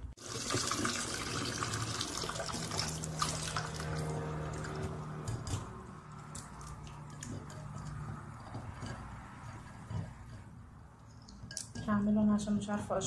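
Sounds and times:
water drips and splashes: 0.2s - 5.0s.

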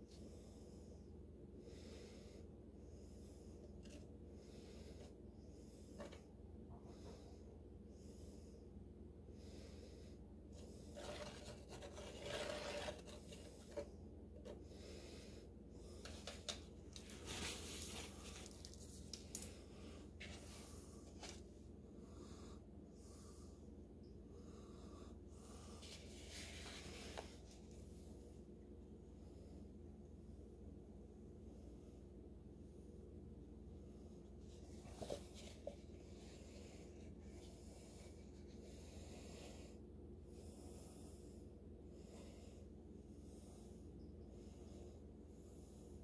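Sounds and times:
stick stirring cement mix: 10.9s - 14.5s.

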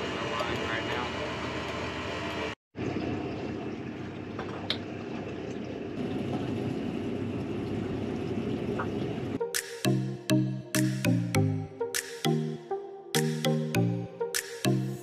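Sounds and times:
water noise: 2.8s - 9.4s.

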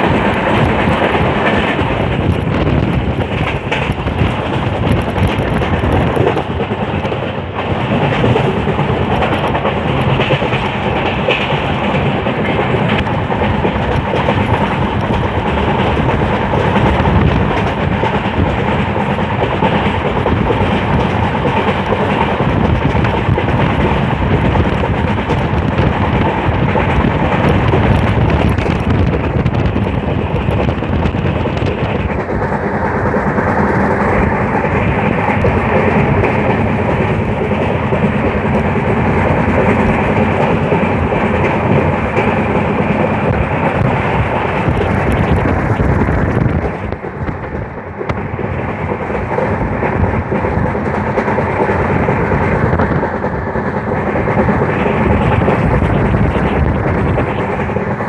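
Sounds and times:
train running gear rumble and rattle: 0.0s - 58.0s.

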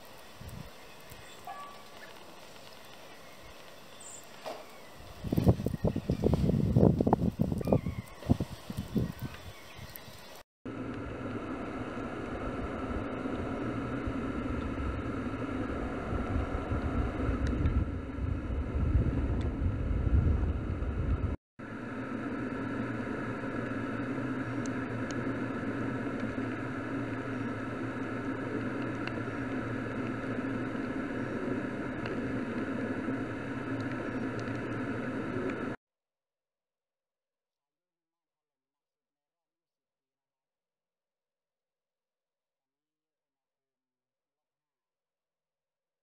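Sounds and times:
vehicle engine hum: 0.0s - 35.8s
road noise: 8.3s - 35.8s
gusty low rumble: 10.7s - 35.8s.

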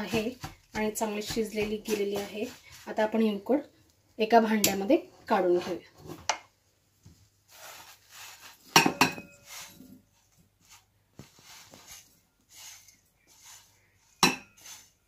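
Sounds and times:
dough scraping and rustling: 0.0s - 3.7s, 7.1s - 15.0s.

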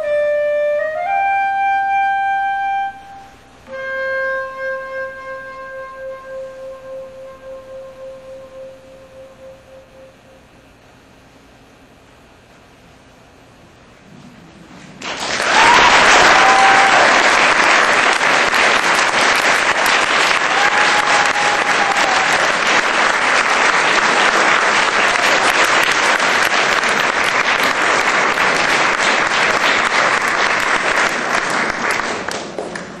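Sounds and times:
audience applauding: 15.0s - 33.0s
brief cheers: 15.3s - 17.5s, 20.3s - 22.6s.

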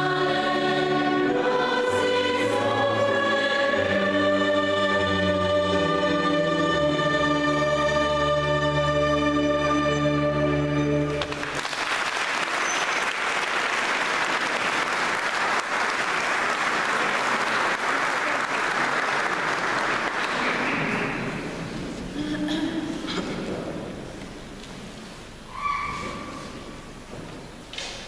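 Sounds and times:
choir holding a chord: 0.0s - 11.2s
audience applause: 11.2s - 21.4s.

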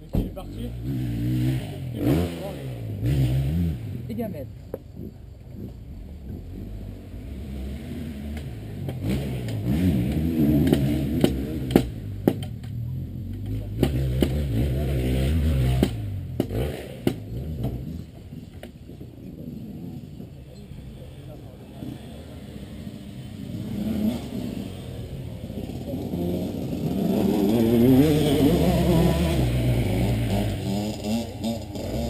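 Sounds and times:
dirt bike engine revving: 0.5s - 4.3s, 5.0s - 18.2s, 21.7s - 32.0s.

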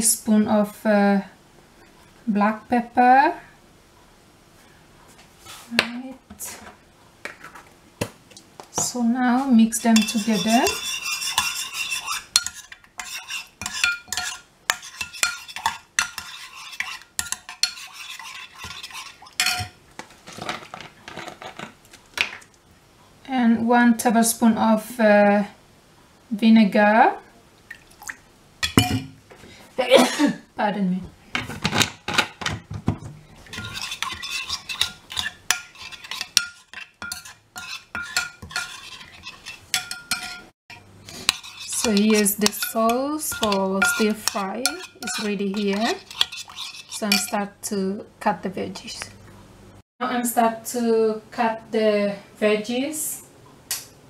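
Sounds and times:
metal spoon scraping ceramic bowl: 9.6s - 19.8s, 33.4s - 47.5s.

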